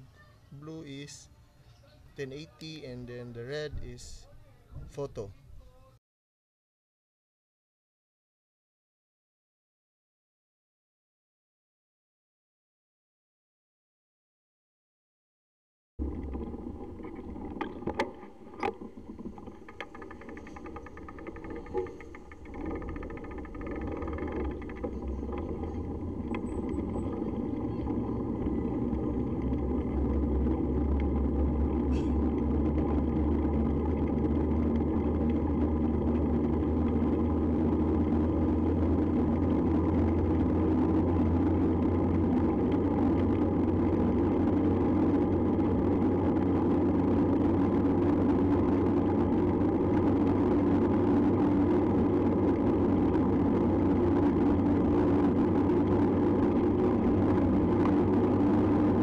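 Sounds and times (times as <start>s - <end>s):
bike road rattle: 16.0s - 59.0s
wind buffeting microphone: 16.0s - 59.0s.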